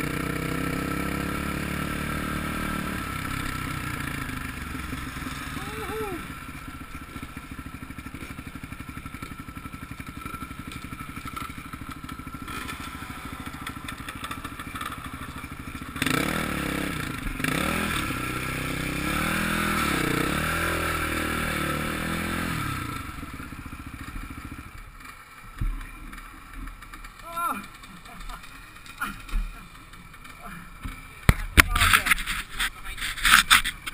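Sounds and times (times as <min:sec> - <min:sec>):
motocross bike engine revving: 0:00.0 - 0:33.9.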